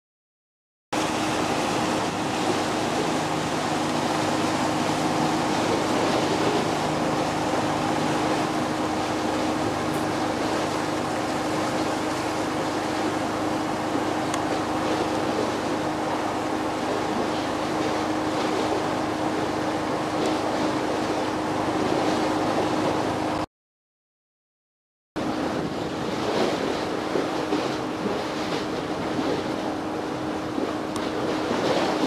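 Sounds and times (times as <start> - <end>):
wind: 0.9 - 23.5, 25.2 - 32.0
water wash: 1.0 - 23.4, 25.2 - 32.0
boat engines humming: 1.0 - 23.5, 25.2 - 32.0.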